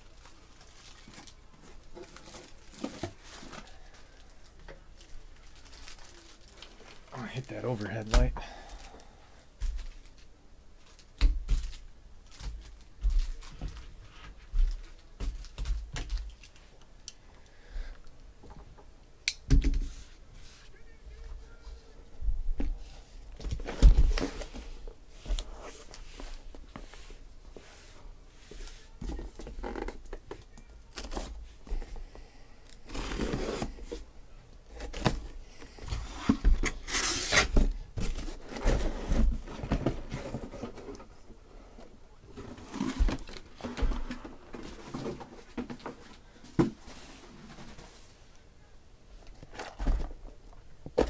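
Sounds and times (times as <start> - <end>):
cardboard scraping and rustling: 32.8 - 34.1, 34.7 - 41.1, 42.3 - 48.2.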